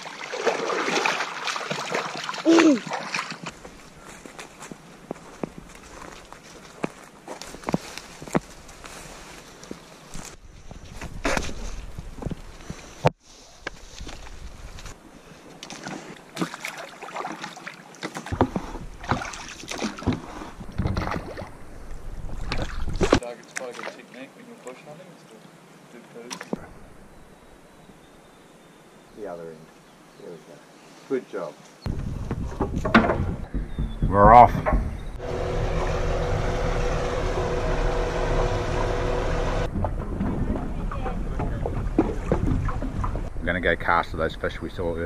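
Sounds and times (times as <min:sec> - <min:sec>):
oar splashing water: 0:00.0 - 0:04.0, 0:15.5 - 0:24.2, 0:26.2 - 0:27.3, 0:32.3 - 0:43.4
wind rumble on microphone: 0:10.2 - 0:13.0, 0:20.6 - 0:23.2, 0:31.9 - 0:35.8, 0:38.9 - 0:45.0
knocks and clicks: 0:31.9 - 0:35.9
boat engine humming: 0:33.3 - 0:43.4.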